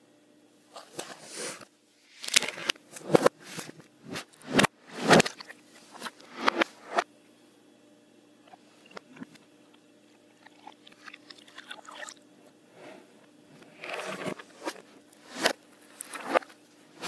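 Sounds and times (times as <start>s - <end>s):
milk pouring into a glass: 10.4s - 12.2s.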